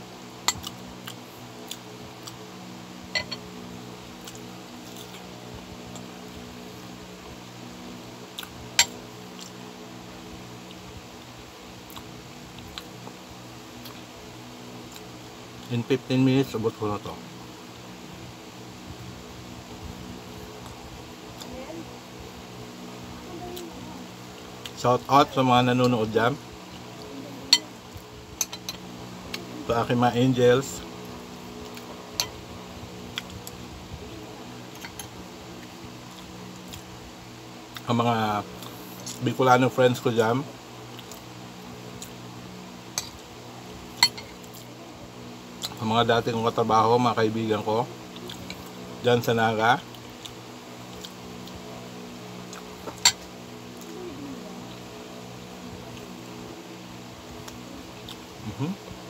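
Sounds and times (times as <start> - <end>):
steady low hum: 0.0 - 59.0
metal spoon clinking on bowl: 3.2 - 3.4, 44.0 - 44.3.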